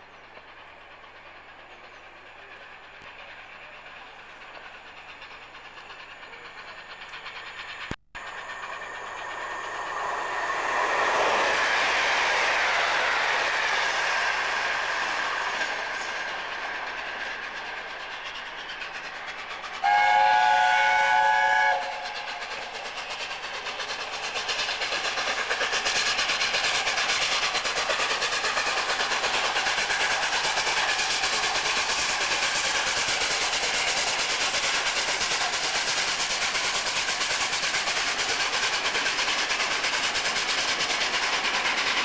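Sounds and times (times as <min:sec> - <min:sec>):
train running noise: 0:00.0 - 0:42.0
steam locomotive chime whistle: 0:19.8 - 0:22.5.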